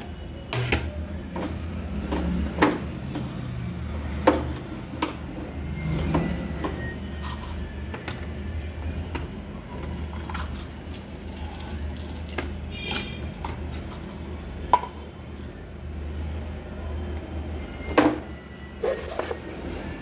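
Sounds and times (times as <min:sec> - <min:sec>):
utensils clinking on steel jar: 0:10.2 - 0:15.6.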